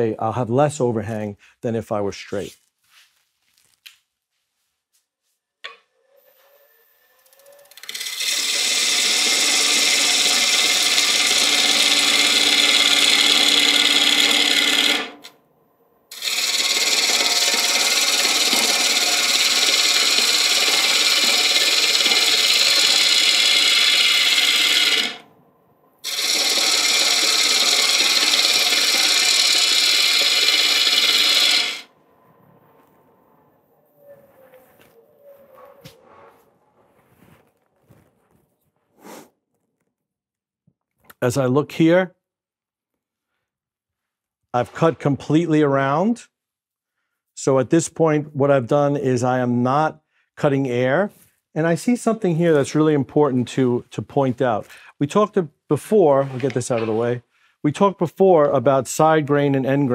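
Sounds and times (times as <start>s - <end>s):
lathe hum: 7.7s - 15.3s, 16.1s - 25.3s, 26.0s - 32.0s
tool scraping wood: 7.8s - 15.3s, 16.1s - 25.2s, 26.0s - 31.9s, 55.8s - 57.2s.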